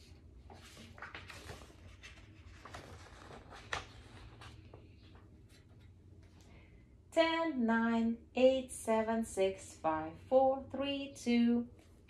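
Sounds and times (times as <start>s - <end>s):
book pages rustling: 0.1s - 6.4s.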